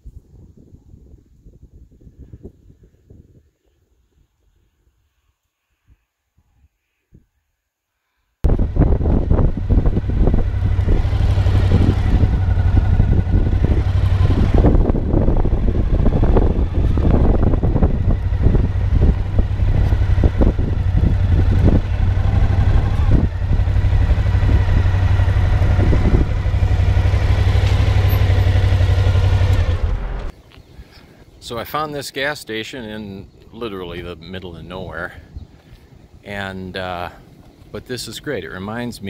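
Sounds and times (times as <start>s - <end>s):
motorcycle engine low drone: 8.4s - 30.4s.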